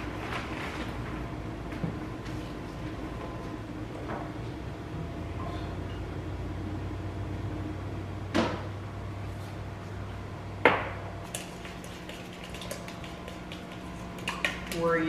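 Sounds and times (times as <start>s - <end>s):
steady low hum: 0.9s - 15.0s
utensil clinking against metal bowl: 11.3s - 15.0s.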